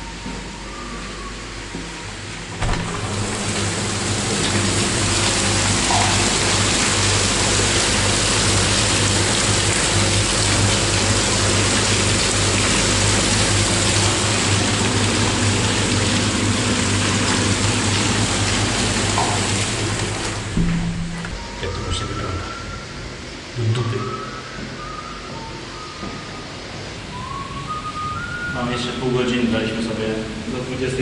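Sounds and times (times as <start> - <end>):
heavy rain pouring: 2.6 - 21.2.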